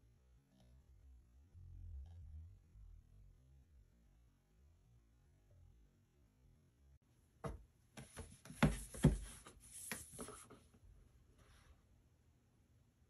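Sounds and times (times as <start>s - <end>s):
cardboard boxes knocking on wood: 7.4s - 9.4s.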